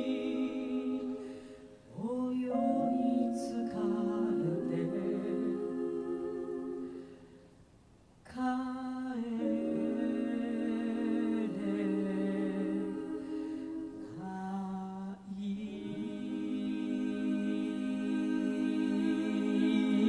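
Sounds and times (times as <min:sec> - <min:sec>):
voices singing wordless harmony: 0:00.0 - 0:20.0.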